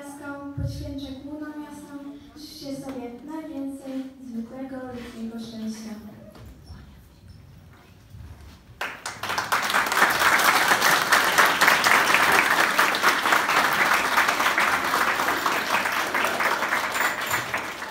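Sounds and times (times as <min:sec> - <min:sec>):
audience applauding: 0:08.8 - 0:17.9.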